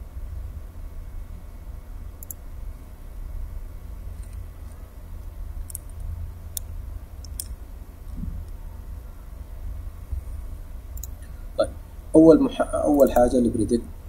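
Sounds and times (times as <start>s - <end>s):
low electrical hum: 0.0s - 14.0s
computer mouse clicks: 2.2s - 2.4s, 4.1s - 4.8s, 5.6s - 8.6s, 11.0s - 11.3s.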